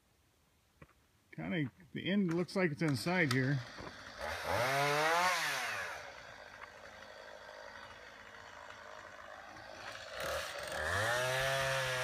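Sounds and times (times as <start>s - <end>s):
chainsaw engine revving: 2.9s - 12.0s.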